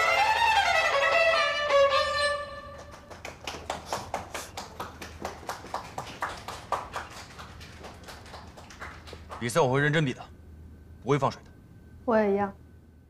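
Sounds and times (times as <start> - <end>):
two violins playing: 0.0 - 3.0.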